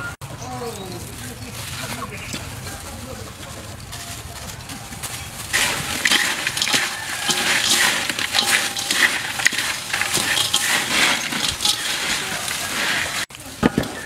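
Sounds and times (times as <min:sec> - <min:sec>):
fried insects crackling in metal bowl: 0:05.2 - 0:14.0.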